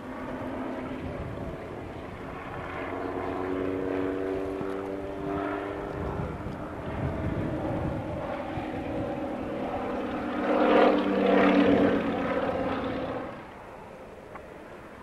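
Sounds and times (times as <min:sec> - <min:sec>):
propeller plane droning overhead: 0:00.0 - 0:15.0.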